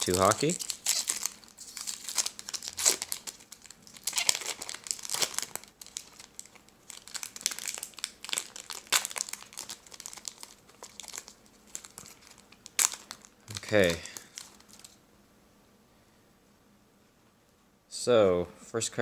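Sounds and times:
foil wrapper tearing and crinkling: 0.0 - 15.0.

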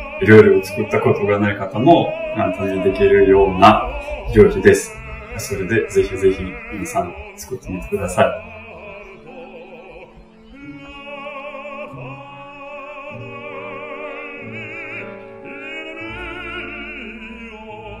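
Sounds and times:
instrumental accompaniment: 0.0 - 18.0
operatic singer with vibrato: 0.0 - 18.0
deep bass note: 1.6 - 8.9.

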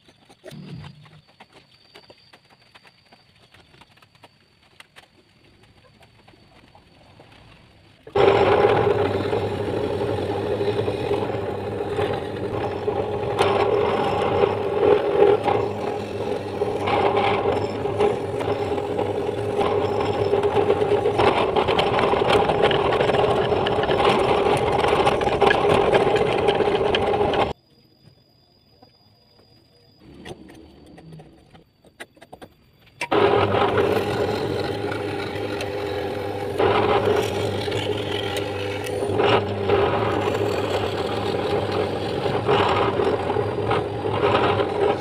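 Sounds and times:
drill bit scraping through wood: 8.1 - 27.6, 33.0 - 45.0
drill press motor humming: 8.1 - 27.6, 33.0 - 45.0.

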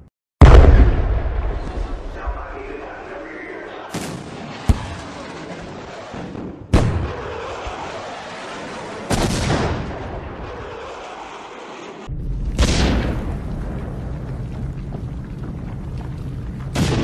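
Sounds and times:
heavy booms with rumble: 0.4 - 2.6, 12.1 - 17.0.

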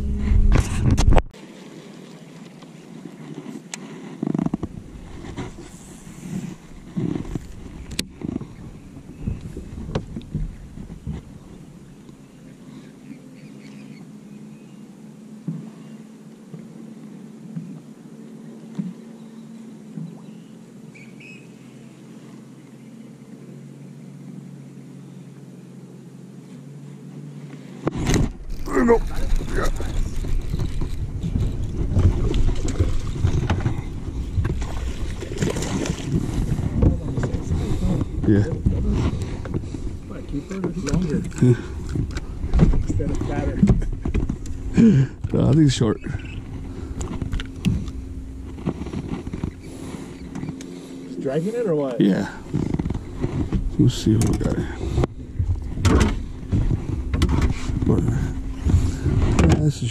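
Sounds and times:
faint steady hum: 2.1 - 59.9
wind buffeting microphone: 4.6 - 11.8, 27.9 - 51.0, 52.3 - 59.9.

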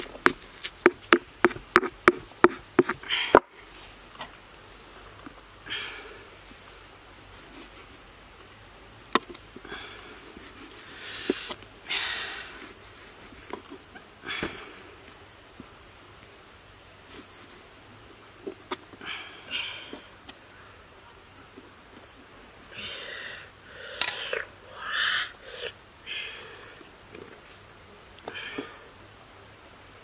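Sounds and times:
insects droning: 0.0 - 30.0
knife tapping on stone mortar: 0.8 - 3.0.

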